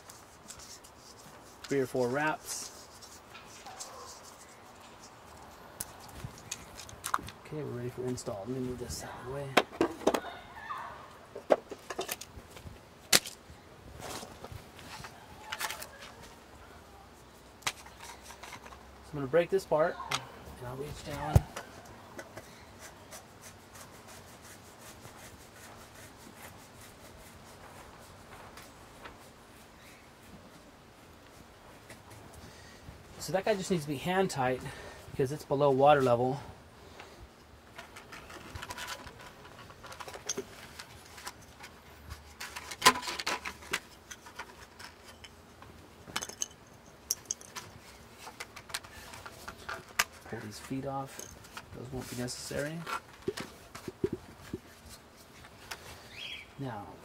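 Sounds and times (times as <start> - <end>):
plastic threads rubbing: 0.0 - 7.3.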